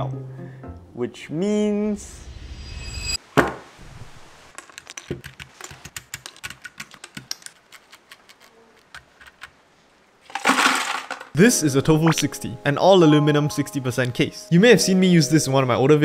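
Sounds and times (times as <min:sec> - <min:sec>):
keyboard keycaps clicking: 0:04.6 - 0:09.6.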